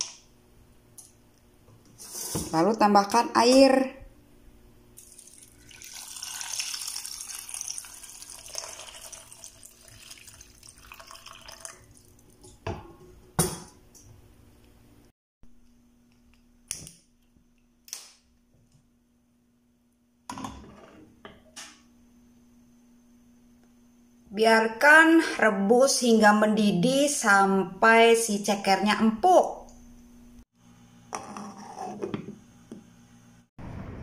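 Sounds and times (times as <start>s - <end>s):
water pouring into saucepan: 5.0s - 12.4s.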